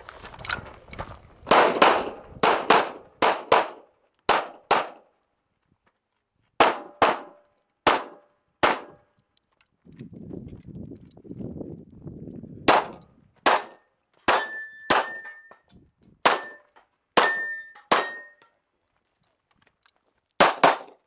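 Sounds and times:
pistol shots: 0:01.5 - 0:05.1, 0:06.6 - 0:09.0, 0:12.7 - 0:15.3, 0:16.2 - 0:18.4, 0:20.4 - 0:21.0.

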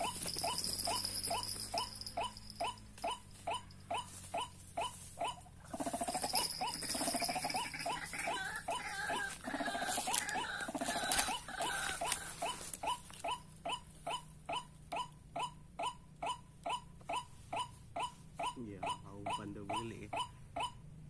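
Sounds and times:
waterhen calls: 0:00.0 - 0:16.0.

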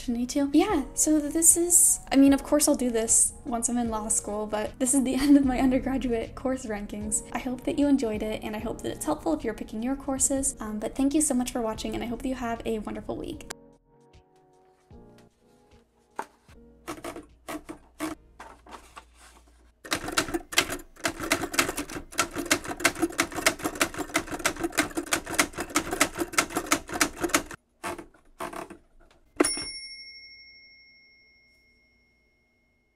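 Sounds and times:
typewriter keystrokes: 0:16.9 - 0:18.2, 0:19.9 - 0:28.8
typewriter paper feed clicks: 0:16.9 - 0:19.1, 0:19.9 - 0:29.5
typewriter bell ding: 0:29.4 - 0:32.9.

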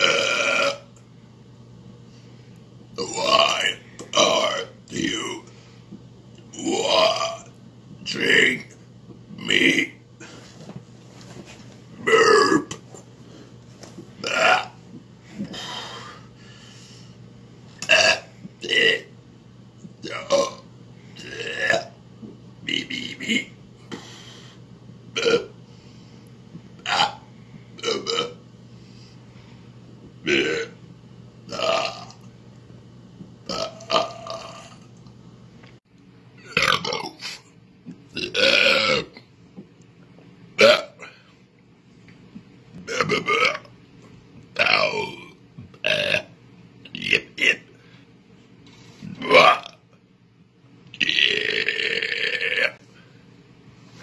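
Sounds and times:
man belching: 0:00.0 - 0:01.0, 0:03.0 - 0:05.5, 0:06.5 - 0:07.5, 0:12.0 - 0:12.8, 0:14.2 - 0:14.8, 0:17.8 - 0:19.1, 0:20.0 - 0:20.6, 0:21.2 - 0:22.0, 0:25.1 - 0:25.5, 0:26.8 - 0:28.4, 0:30.2 - 0:30.8, 0:31.5 - 0:32.3, 0:33.5 - 0:34.8, 0:36.4 - 0:37.2, 0:38.2 - 0:39.2, 0:40.6 - 0:41.2, 0:42.8 - 0:43.7, 0:44.6 - 0:46.3, 0:49.2 - 0:49.8, 0:51.0 - 0:52.8
man burping: 0:00.0 - 0:01.0, 0:12.0 - 0:12.8, 0:14.2 - 0:14.8, 0:17.8 - 0:19.1, 0:20.1 - 0:20.6, 0:21.2 - 0:22.0, 0:25.1 - 0:25.5, 0:26.8 - 0:28.4, 0:30.2 - 0:30.8, 0:31.5 - 0:32.3, 0:33.5 - 0:34.8, 0:36.4 - 0:37.2, 0:38.2 - 0:39.3, 0:40.6 - 0:41.2, 0:42.8 - 0:43.7, 0:44.6 - 0:46.3, 0:49.2 - 0:49.8, 0:51.0 - 0:52.8.

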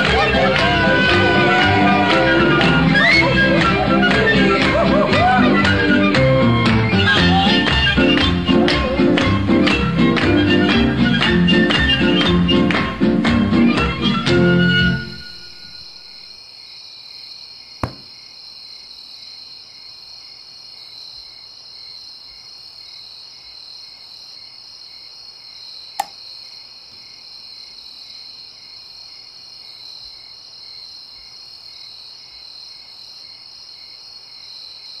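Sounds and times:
cricket chirping: 0:15.0 - 0:35.0.

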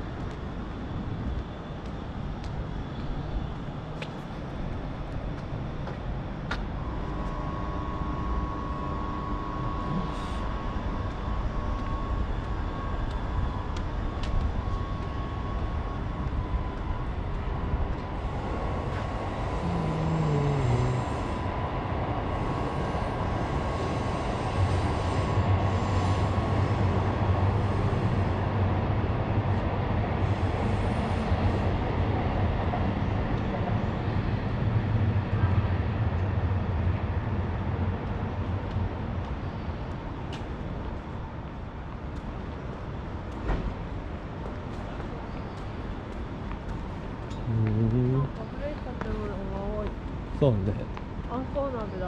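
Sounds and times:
urban vehicle noise: 0:00.0 - 0:52.0
faint steady tone: 0:06.7 - 0:28.6
short falling whine: 0:19.4 - 0:21.4.

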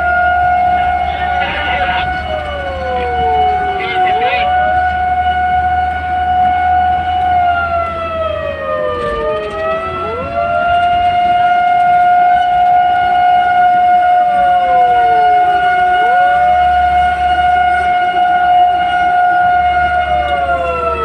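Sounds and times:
falling and rising siren tone: 0:00.0 - 0:21.0
fire engine siren steady tone: 0:00.0 - 0:21.0.

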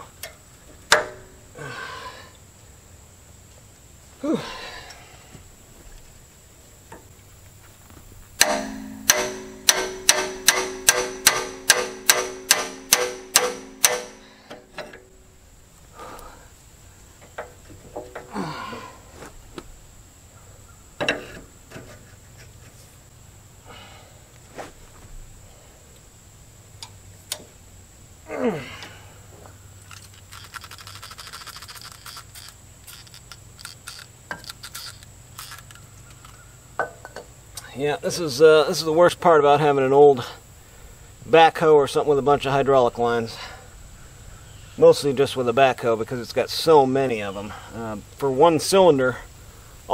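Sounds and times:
hammer striking steel wrench: 0:08.4 - 0:14.2
wrench clicking: 0:08.4 - 0:14.2, 0:29.9 - 0:36.4.

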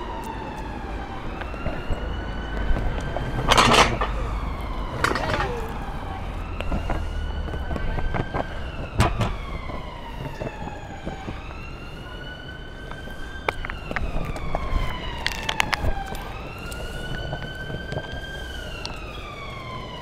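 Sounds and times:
emergency siren wailing: 0:00.0 - 0:20.0
longboard wheels rumbling on paving: 0:00.0 - 0:20.0
wheels clicking over joints: 0:00.0 - 0:20.0.

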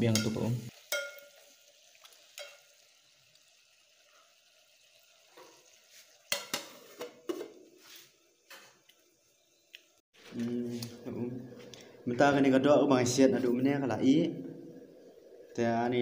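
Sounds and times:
beef sizzling in a pot: 0:00.0 - 0:10.0.

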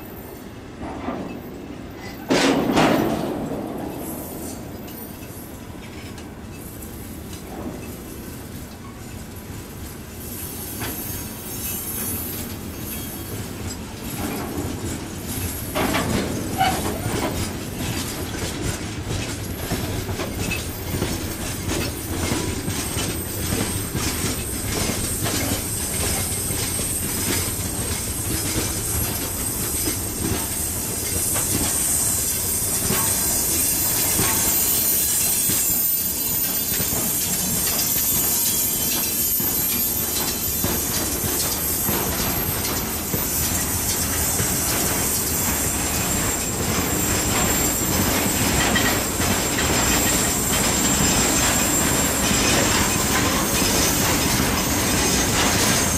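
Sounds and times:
train wheels clicking over rail joints: 0:00.6 - 0:55.9
high steady squeal: 0:20.3 - 0:55.9.

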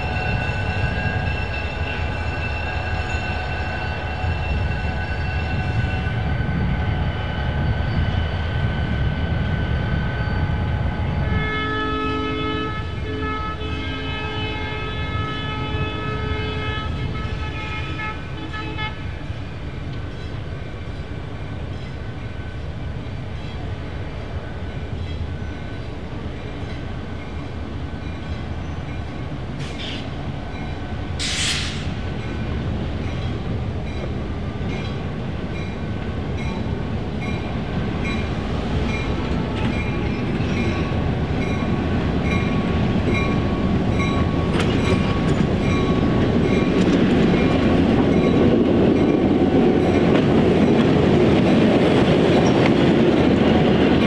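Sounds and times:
train engine and wheels rumbling: 0:00.0 - 0:54.0
train air horn chord: 0:11.2 - 0:19.0
short hissing bursts: 0:31.2 - 0:31.9.

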